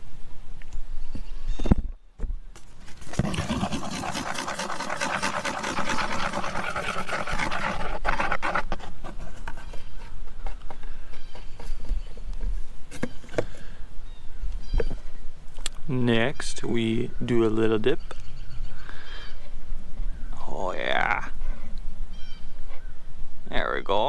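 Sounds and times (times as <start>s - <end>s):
rapid scraping of stirring: 2.8s - 12.2s.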